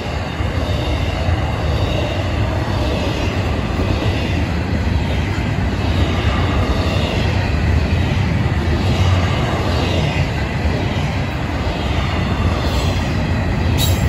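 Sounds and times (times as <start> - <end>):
freight train rolling past: 0.0 - 14.0.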